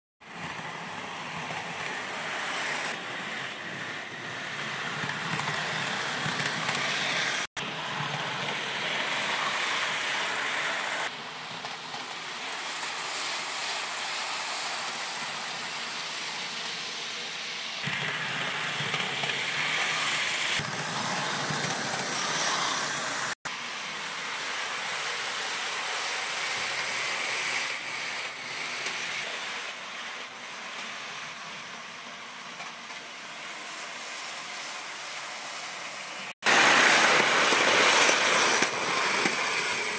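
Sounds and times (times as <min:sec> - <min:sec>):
model train motor whirring: 0:00.5 - 0:16.9, 0:36.5 - 0:39.9
wheels rolling over rails: 0:04.0 - 0:09.7, 0:17.8 - 0:23.4, 0:36.4 - 0:39.9.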